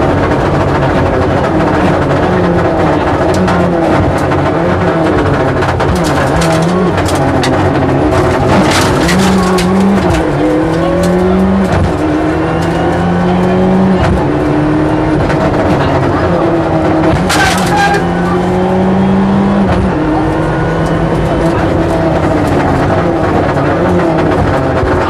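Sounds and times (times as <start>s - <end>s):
rally car engine revving through gears: 0.0s - 25.0s.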